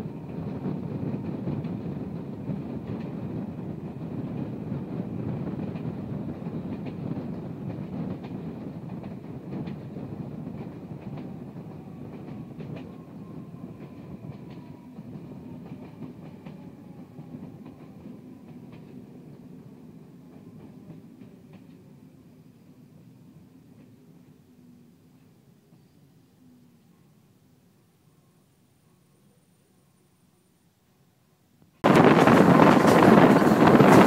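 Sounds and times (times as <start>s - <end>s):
train wheels rumbling on rails: 0.0s - 22.8s, 31.8s - 34.0s.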